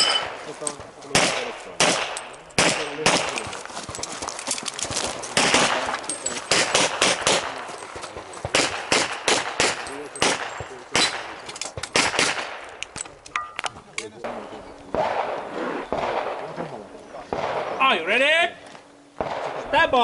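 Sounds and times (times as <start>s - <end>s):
handgun shots: 1.1s - 3.5s, 5.4s - 7.6s, 8.5s - 13.0s.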